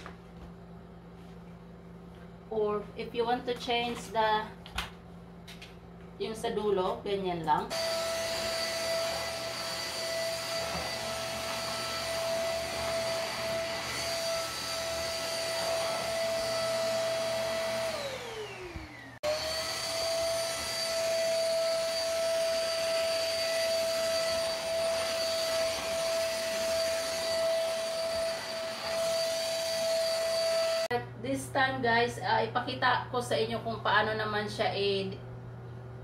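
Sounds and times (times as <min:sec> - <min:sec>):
handheld vacuum cleaner whining: 0:07.7 - 0:31.0.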